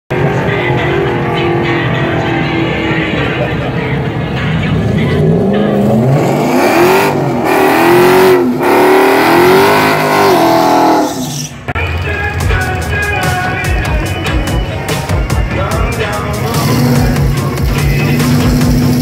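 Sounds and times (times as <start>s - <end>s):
car engine revving: 0.1s - 19.0s
music with a steady beat: 11.8s - 19.0s.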